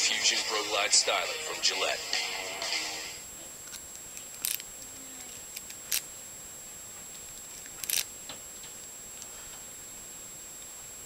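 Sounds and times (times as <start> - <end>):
lock pick clicking in padlock: 7.8 - 8.1.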